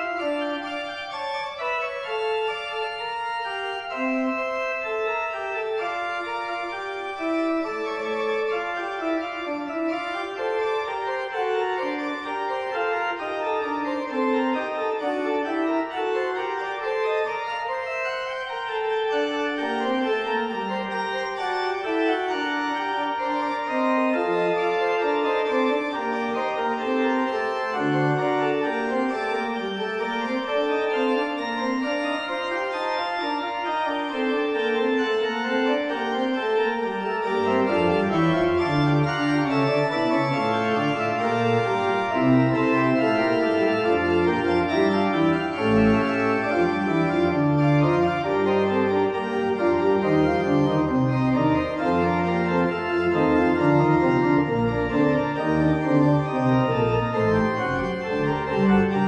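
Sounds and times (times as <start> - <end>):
church organ chords: 0.0 - 59.0.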